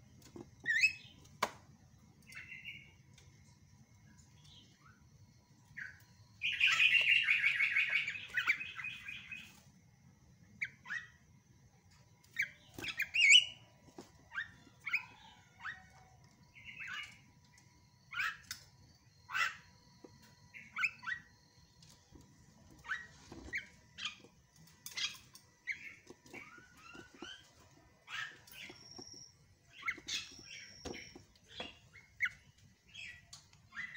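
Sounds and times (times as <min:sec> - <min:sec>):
high bird whistles: 0:06.4 - 0:09.4
bird chirps and squeaks: 0:12.3 - 0:16.0, 0:18.1 - 0:18.5, 0:19.2 - 0:19.8, 0:20.4 - 0:21.5, 0:22.7 - 0:33.9.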